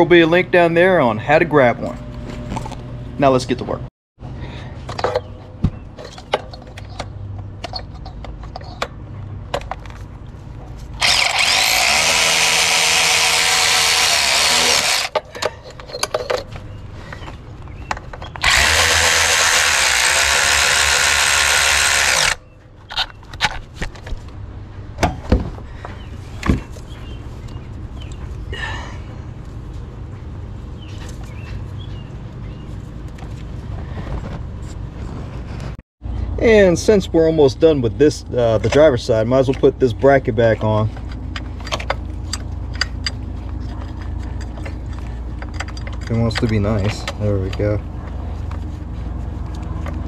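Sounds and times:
cordless ratchet running: 0:11.0 - 0:15.2, 0:18.4 - 0:22.4.

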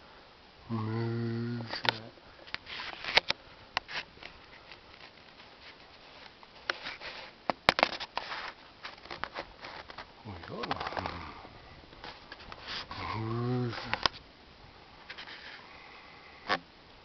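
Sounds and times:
camera handling rustle: 0:01.7 - 0:11.2.

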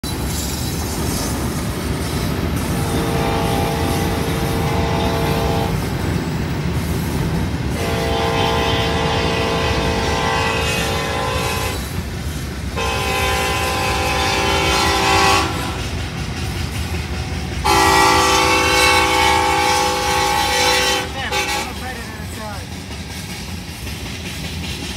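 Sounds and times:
train air horn blasts: 0:02.7 - 0:05.9, 0:07.7 - 0:11.9, 0:12.8 - 0:16.0, 0:17.6 - 0:21.8.

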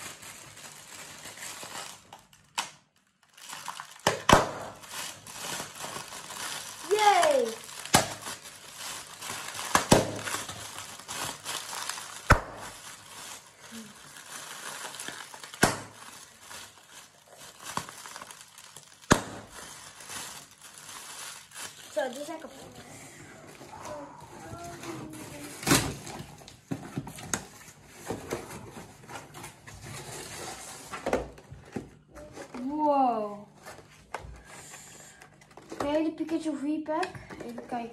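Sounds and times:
plastic packaging crinkling: 0:00.0 - 0:22.8, 0:23.7 - 0:34.1.

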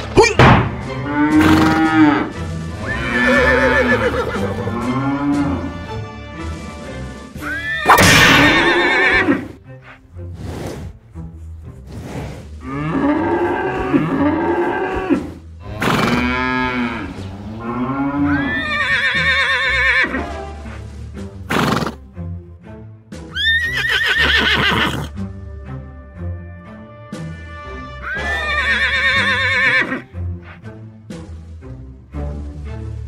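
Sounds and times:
background music: 0:00.0 - 0:33.0
cattle mooing: 0:01.0 - 0:05.9, 0:12.6 - 0:20.0
horse whinnying: 0:02.8 - 0:04.6, 0:07.4 - 0:10.0, 0:12.1 - 0:17.0, 0:17.8 - 0:20.2, 0:21.5 - 0:22.0, 0:23.3 - 0:25.1, 0:28.0 - 0:30.1.

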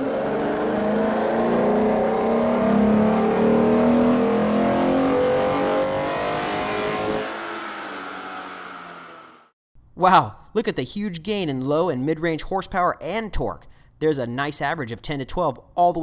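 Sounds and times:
car engine revving at full throttle: 0:00.0 - 0:09.5.

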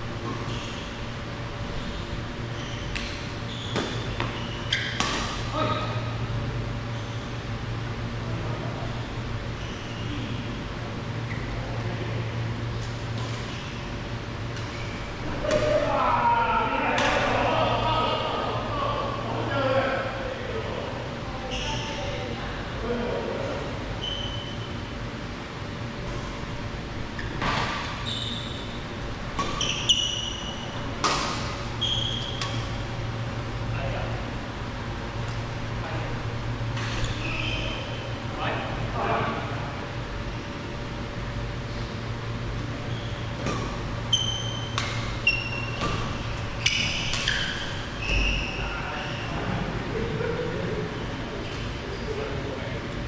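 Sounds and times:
shoes squeaking on court floor: 0:00.2 - 0:01.0, 0:01.6 - 0:06.0, 0:09.5 - 0:10.6, 0:11.2 - 0:11.6, 0:12.8 - 0:14.0, 0:14.6 - 0:15.6, 0:21.4 - 0:22.2, 0:24.0 - 0:24.8, 0:27.1 - 0:32.8, 0:36.8 - 0:38.2, 0:42.6 - 0:49.4.

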